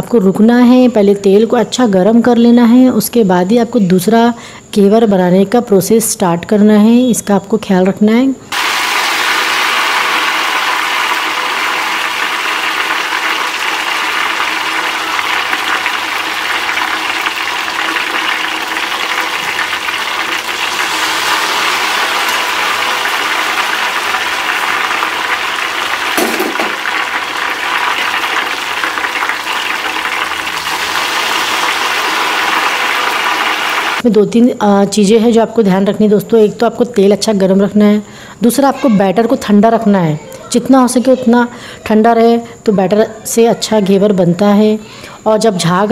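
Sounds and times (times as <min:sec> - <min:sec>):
batter sizzling in hot fat: 0:08.5 - 0:34.1.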